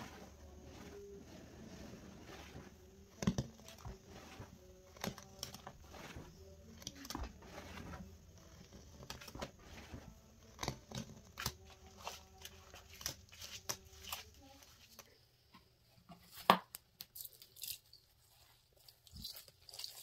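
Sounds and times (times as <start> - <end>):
hands squishing foamy paste: 0.0 - 14.9.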